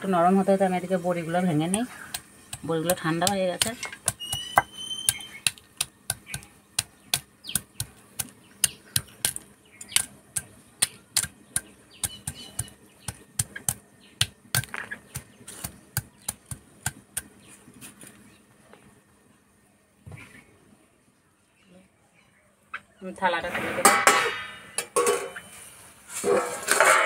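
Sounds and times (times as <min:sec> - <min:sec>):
stone pestle crushing crisp food: 0:01.6 - 0:17.4.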